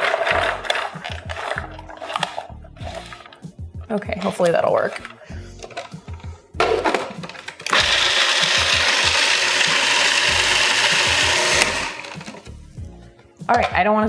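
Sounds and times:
food processor grinding nuts: 0.0 - 3.4, 6.9 - 12.6.

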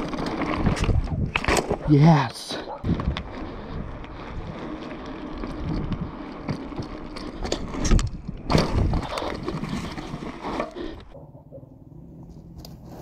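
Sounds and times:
bike tyres rumbling on asphalt: 0.0 - 13.0
wind buffeting microphone: 0.5 - 1.4, 2.8 - 9.8
bike thumping over bumps: 5.6 - 11.1.

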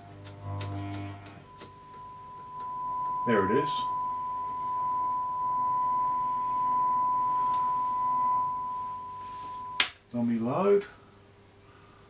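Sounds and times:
steady pure test tone: 0.0 - 9.9.

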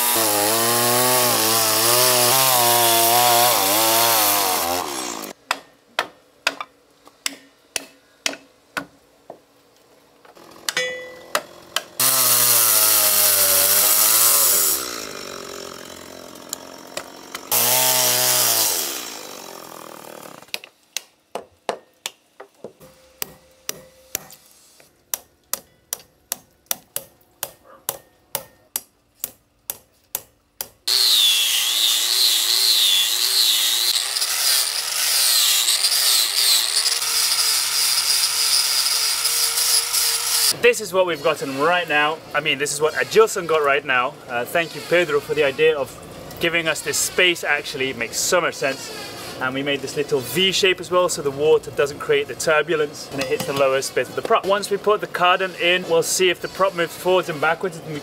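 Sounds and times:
chainsaw cutting wood: 0.0 - 5.4, 10.3 - 20.8, 30.6 - 49.7
hammer striking chisel: 5.5 - 8.9, 10.7 - 12.0, 20.5 - 24.4, 25.1 - 30.8.

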